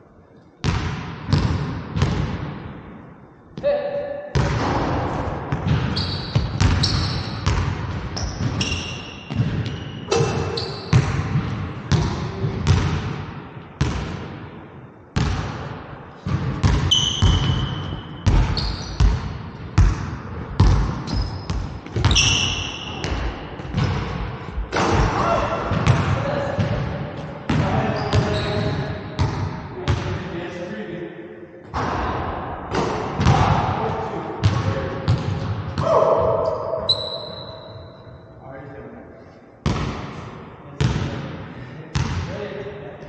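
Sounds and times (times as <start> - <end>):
basketball bouncing on wooden floor: 0.6 - 2.3, 5.5 - 9.8, 10.9 - 13.1, 16.3 - 22.3, 34.4 - 35.8
sneaker squeaks: 5.7 - 7.6, 8.2 - 11.1, 16.7 - 19.2, 21.0 - 23.9, 27.6 - 29.0, 35.8 - 38.4.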